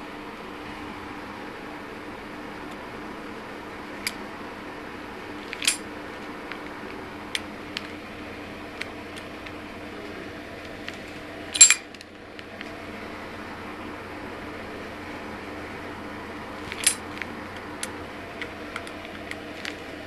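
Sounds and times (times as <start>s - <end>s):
blade mechanism clicking and rattling: 5.4s - 5.9s, 11.5s - 12.0s, 16.7s - 19.9s.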